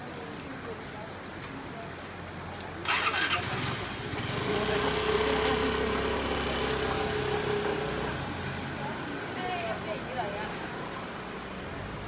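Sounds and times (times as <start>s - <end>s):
scooter engine starting and idling: 2.8s - 8.0s.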